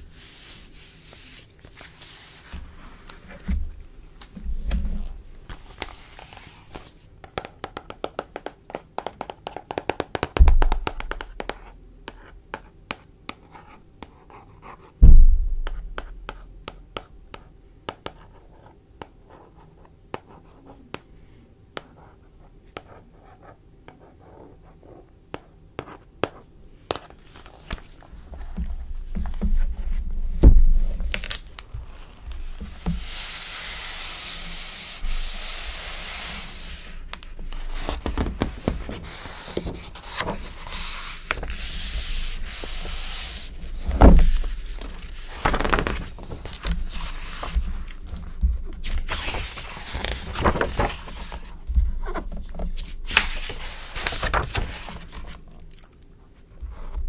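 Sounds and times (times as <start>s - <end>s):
hands rubbing across book cover: 0.1s - 3.2s, 31.2s - 47.8s
heavy thump: 15.0s - 16.3s.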